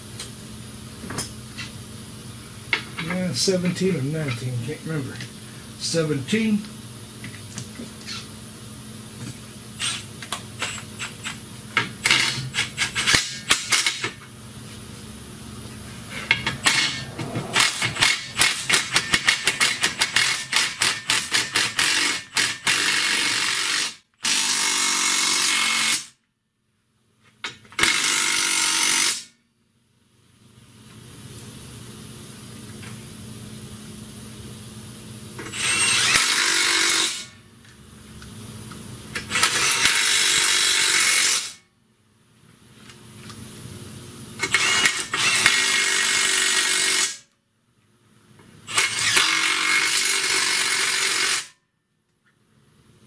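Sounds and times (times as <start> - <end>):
impact wrench on a bolt: 16.1 - 24.9.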